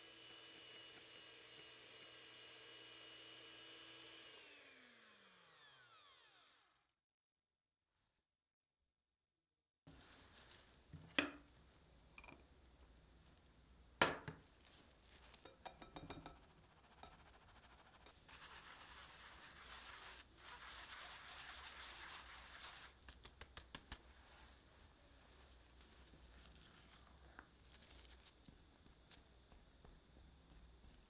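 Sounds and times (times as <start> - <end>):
flour sieve rustling hiss: 9.9 - 10.9, 17.4 - 31.0
taps on a sieve: 15.4 - 16.4.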